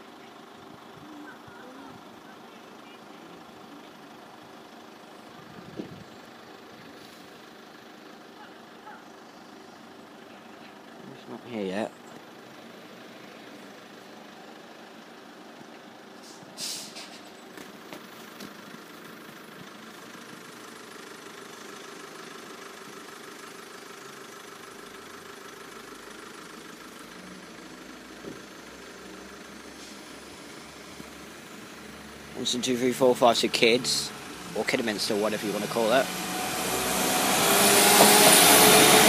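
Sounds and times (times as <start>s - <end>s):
diesel train engine idling: 0.0s - 39.0s
brief hiss: 16.2s - 17.3s
deep engine note of train pulling away: 24.9s - 39.0s.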